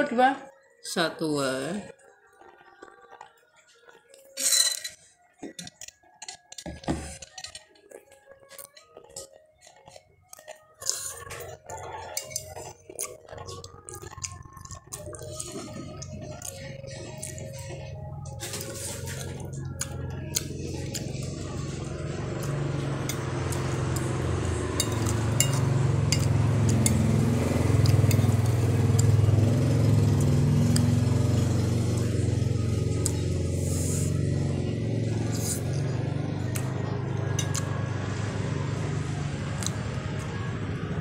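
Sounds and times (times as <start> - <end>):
low engine-like hum: 14.2 - 41.0.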